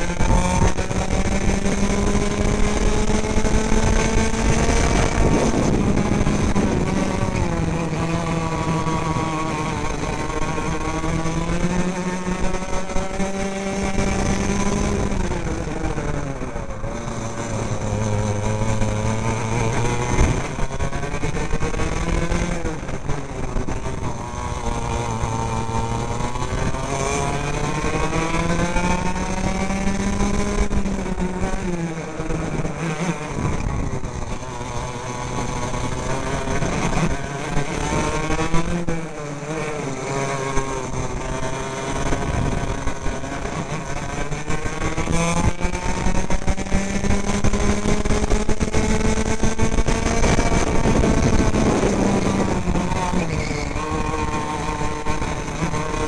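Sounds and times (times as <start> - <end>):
racing kart engine: 0.0 - 56.0.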